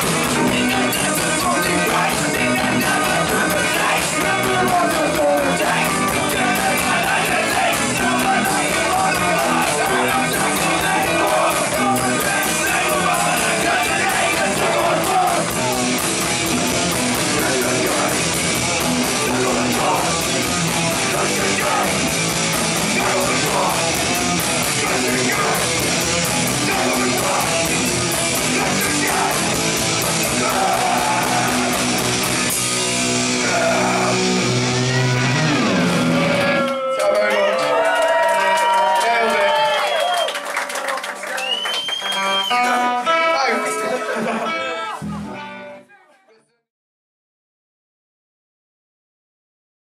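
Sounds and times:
fast drums: 0:00.0 - 0:36.2
bass guitar: 0:00.0 - 0:37.0, 0:42.2 - 0:45.9
sung vocals: 0:00.0 - 0:37.6
distorted electric guitars: 0:00.0 - 0:37.8, 0:42.2 - 0:45.9.

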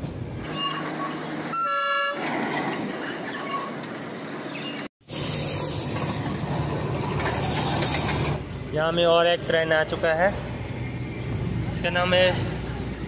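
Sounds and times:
train running inside coach: 0:00.0 - 0:08.7
train horn blast: 0:00.5 - 0:02.2.

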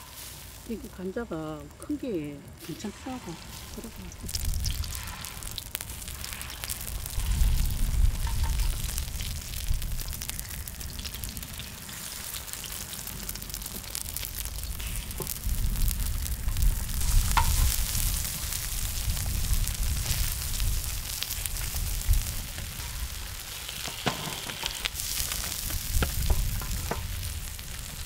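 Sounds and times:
batter sizzling in hot oil: 0:00.0 - 0:28.0
wooden spatula on griddle: 0:00.0 - 0:28.0
low rumble: 0:03.3 - 0:11.8, 0:14.2 - 0:23.5.

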